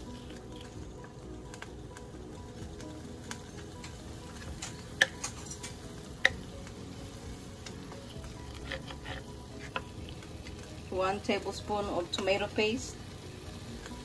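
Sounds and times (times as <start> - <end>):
vegetables sizzling in a frying pan: 0.0 - 14.0
wooden spoon scraping a pan: 8.4 - 9.9.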